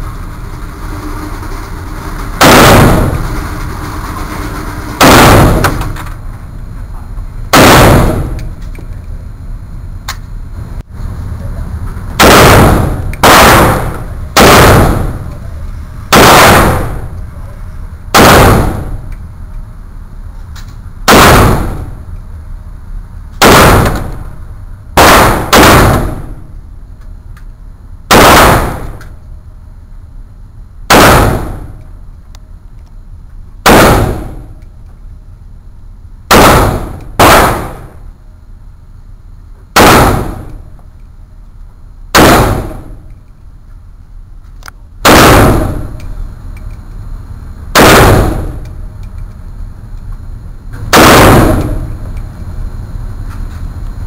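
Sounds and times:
rifle shots echoing indoors: 0:00.8 - 0:06.2, 0:07.5 - 0:08.8, 0:12.2 - 0:19.3, 0:21.0 - 0:22.2, 0:23.4 - 0:26.6, 0:28.1 - 0:29.2, 0:30.9 - 0:31.9, 0:33.6 - 0:34.7, 0:36.3 - 0:38.2, 0:39.8 - 0:40.8, 0:42.1 - 0:43.3, 0:45.0 - 0:46.8, 0:47.7 - 0:49.3, 0:50.9 - 0:52.3.

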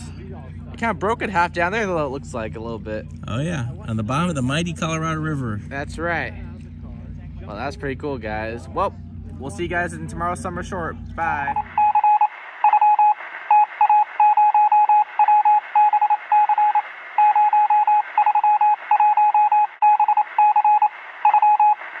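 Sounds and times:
morse code beeping: 0:11.4 - 0:22.0.

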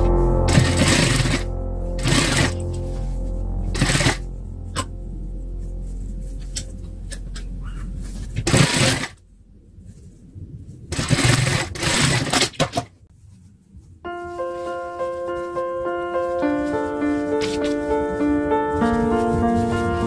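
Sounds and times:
fabric rustling: 0:00.1 - 0:04.7, 0:05.3 - 0:09.2, 0:13.1 - 0:20.0
sewing machine running: 0:00.5 - 0:01.4, 0:02.0 - 0:02.6, 0:03.8 - 0:04.2, 0:08.5 - 0:09.1, 0:10.9 - 0:12.4.

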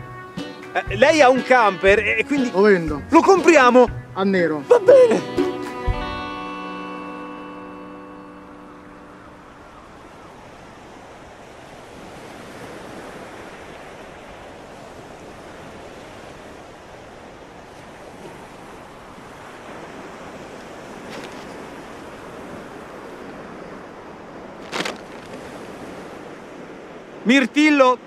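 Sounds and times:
sea surf breaking on shore: 0:06.5 - 0:28.0
wind buffeting microphone: 0:08.8 - 0:27.3.

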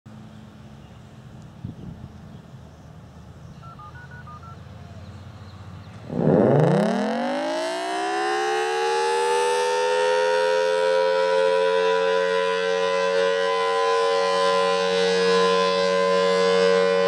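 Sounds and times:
short beeping tones: 0:03.6 - 0:04.6
rotating siren wailing: 0:06.1 - 0:17.0.

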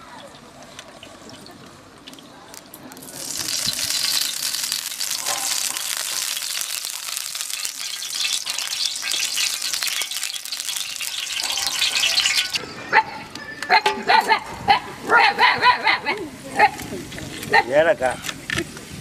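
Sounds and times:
liquid sizzling in hot pot: 0:02.6 - 0:12.6.

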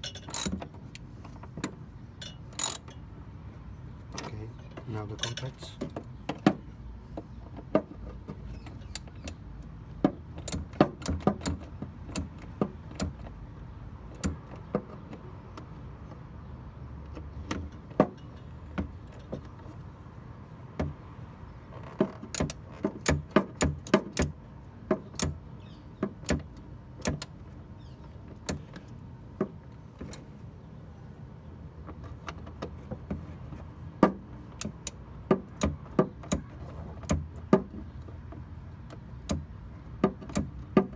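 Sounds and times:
metallic clicks of tool on screw: 0:02.2 - 0:03.0.

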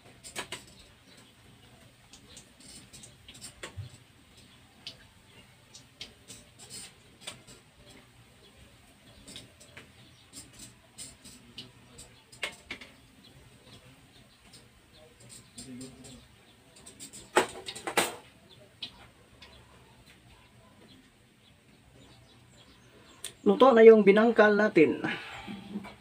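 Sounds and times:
hot oil crackling and popping: 0:00.0 - 0:20.3.

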